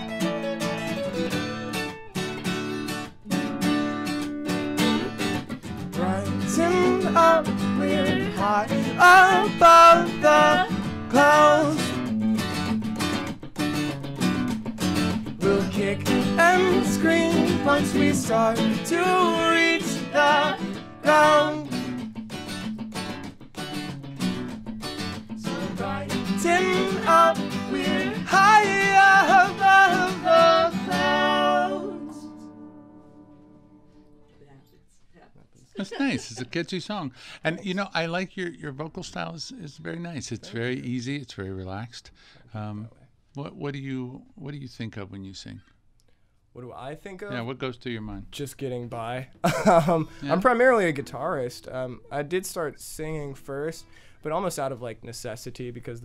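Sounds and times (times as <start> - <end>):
electric guitar lead melody: 0.0 - 34.3
held guitar chords: 0.0 - 34.4.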